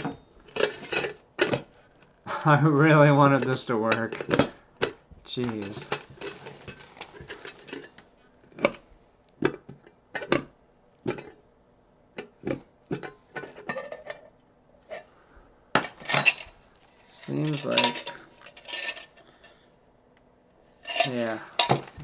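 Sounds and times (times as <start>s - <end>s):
metal cup and lid clinking: 17.5s - 19.1s, 20.9s - 21.9s.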